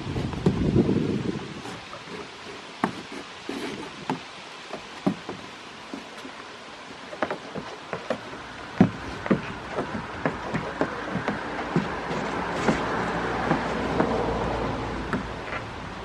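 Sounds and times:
goats knocking on wooden roof: 0:04.8 - 0:05.5, 0:07.2 - 0:14.2.

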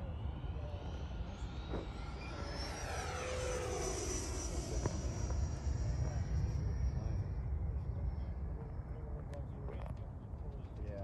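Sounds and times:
model jet fans whining past: 0:00.0 - 0:07.9.

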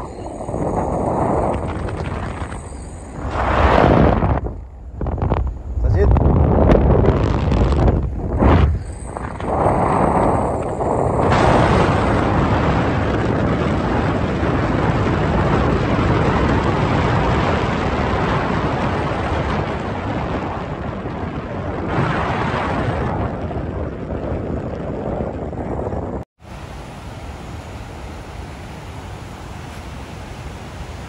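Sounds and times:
wind rushing over microphone: 0:00.0 - 0:31.0
fast-flowing river rushing: 0:26.4 - 0:31.0.

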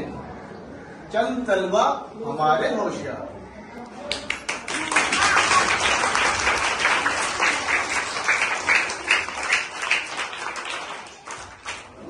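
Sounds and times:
applause: 0:04.1 - 0:12.0.

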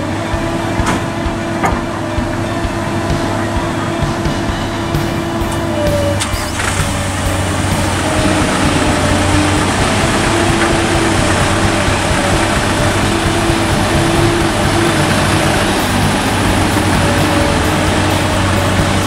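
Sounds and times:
diesel engines running: 0:00.0 - 0:19.0
excavator hum: 0:00.0 - 0:19.0.

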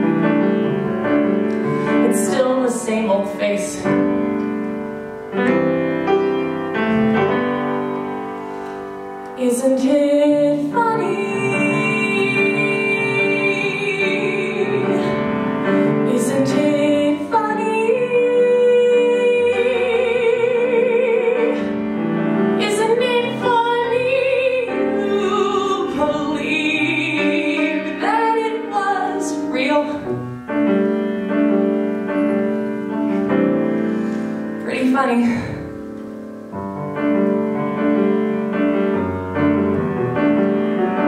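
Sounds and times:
piano accompaniment: 0:00.0 - 0:41.0
woman singing ballad: 0:09.4 - 0:21.8, 0:22.6 - 0:30.1.

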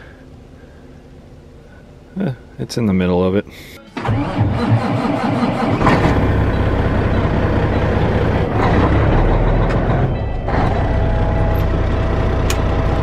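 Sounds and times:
diesel engine idling: 0:03.6 - 0:13.0.

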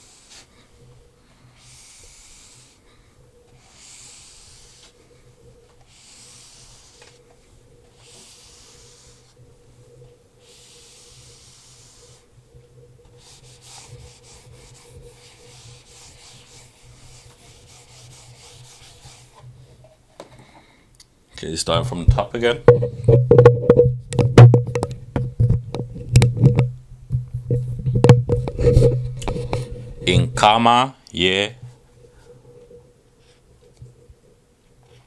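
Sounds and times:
marker scratching on whiteboard: 0:00.0 - 0:00.5, 0:01.6 - 0:02.8, 0:03.6 - 0:05.0, 0:05.8 - 0:07.2, 0:07.9 - 0:09.4, 0:10.4 - 0:12.3, 0:13.2 - 0:19.5.

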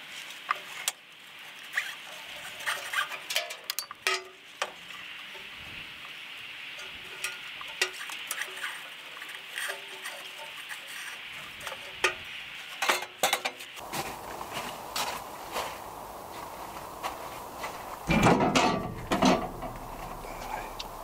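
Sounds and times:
steady hiss: 0:00.0 - 0:21.0
metal parts clicking and clinking: 0:02.1 - 0:04.4
loud knocks: 0:18.1 - 0:20.2.

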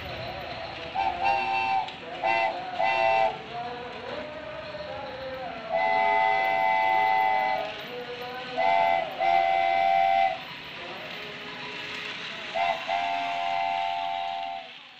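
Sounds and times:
toy train running on track: 0:00.0 - 0:14.9
electronic toy train whistle: 0:01.0 - 0:03.4, 0:05.7 - 0:07.7, 0:08.6 - 0:10.5, 0:12.5 - 0:14.9.

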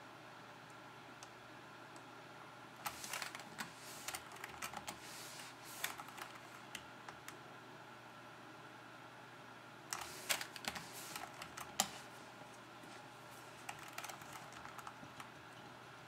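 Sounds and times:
keyboard keys clicking: 0:02.9 - 0:05.0, 0:13.6 - 0:15.3.

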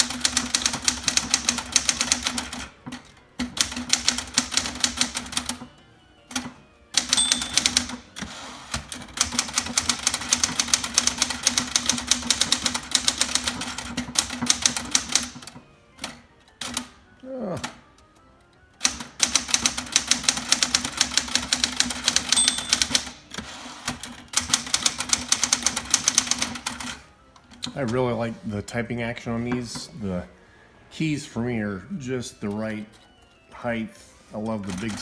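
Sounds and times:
typewriter bell ding: 0:07.0 - 0:08.0, 0:22.2 - 0:23.2
typewriter keys clacking: 0:07.0 - 0:08.0, 0:18.8 - 0:23.3, 0:34.5 - 0:35.0.

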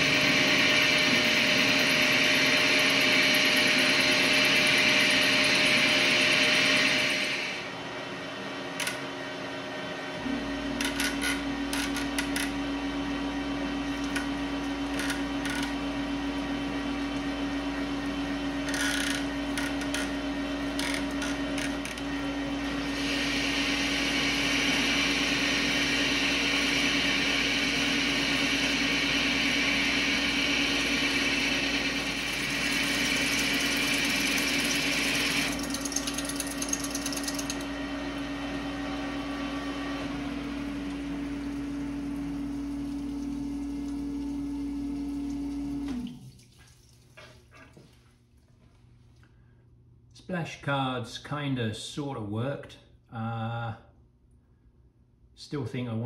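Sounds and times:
metal lathe humming: 0:00.0 - 0:07.8, 0:08.4 - 0:45.2.

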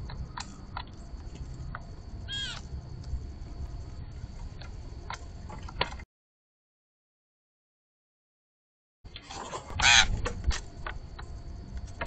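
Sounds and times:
low rumble: 0:00.0 - 0:05.5
birds chirping: 0:02.2 - 0:02.7.

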